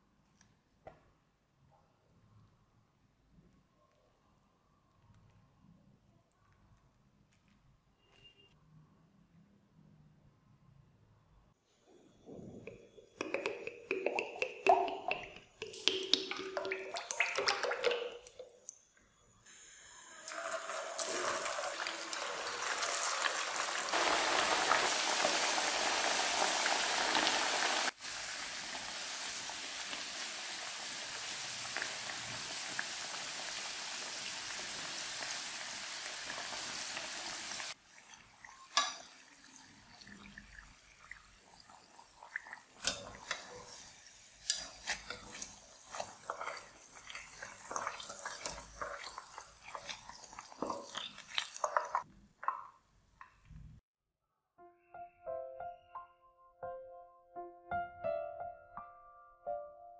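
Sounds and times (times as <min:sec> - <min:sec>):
food sizzling in hot oil: 0:19.5 - 0:52.1.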